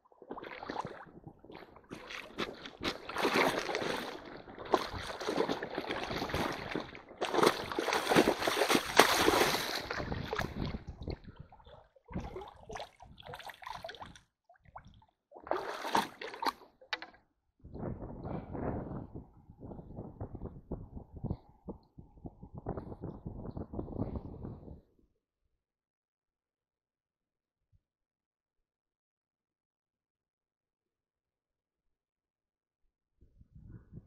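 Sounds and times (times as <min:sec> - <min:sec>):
feet splashing through stream water: 0:00.2 - 0:14.2, 0:15.4 - 0:16.6.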